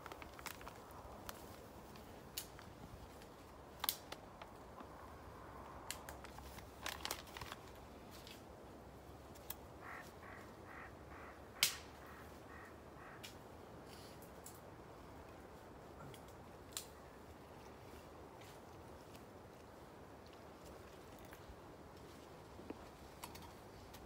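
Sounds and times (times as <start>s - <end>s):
paper packet rustling: 0.0s - 1.6s, 6.2s - 7.8s.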